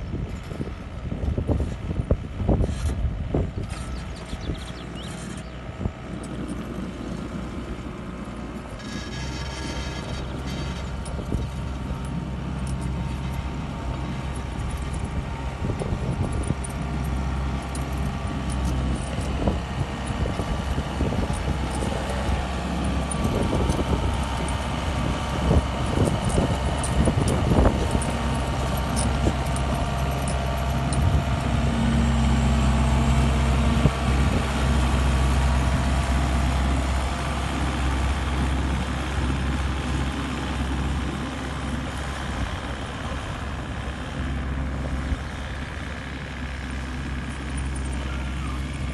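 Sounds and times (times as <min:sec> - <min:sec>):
diesel engine under load: 0:00.0 - 0:48.9
metal clanks and rattles: 0:03.6 - 0:34.4.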